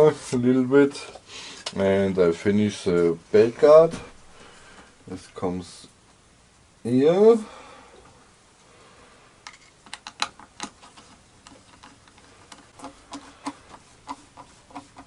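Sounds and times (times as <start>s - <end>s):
screwdriver clicks and taps: 9.9s - 10.8s.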